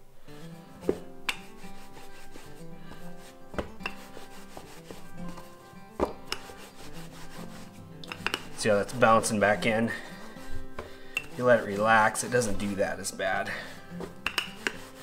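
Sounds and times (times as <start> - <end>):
rolling pin rubbing dough: 0.4 - 15.0
rolling pin knocking on board: 3.5 - 5.0, 6.0 - 6.5, 8.1 - 8.6, 14.0 - 14.8.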